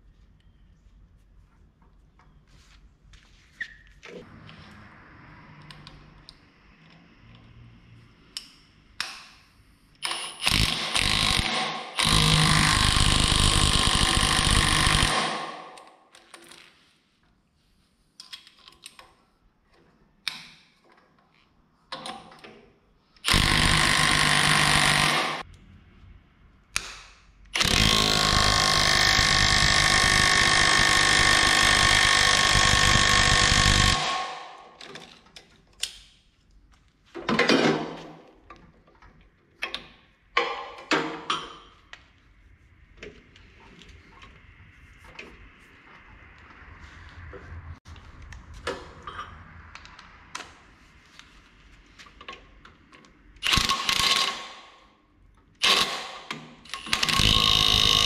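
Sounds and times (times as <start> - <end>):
impact wrench hammering: 10.1 - 15.8, 23.3 - 25.4, 26.8 - 34.8, 53.4 - 54.6.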